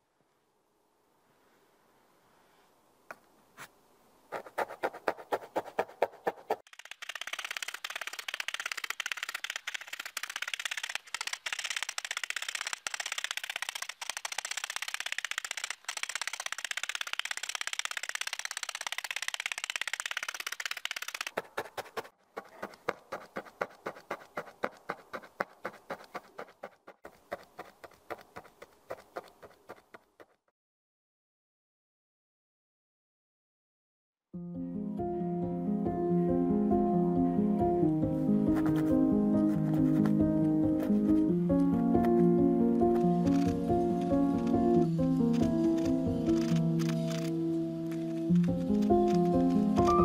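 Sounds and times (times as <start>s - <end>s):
felting needles stabbing into foam: 4.3s - 30.4s.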